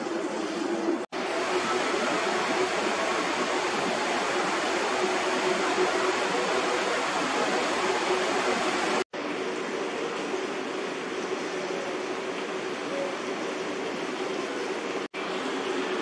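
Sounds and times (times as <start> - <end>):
steady rushing air: 1.1 - 9.1.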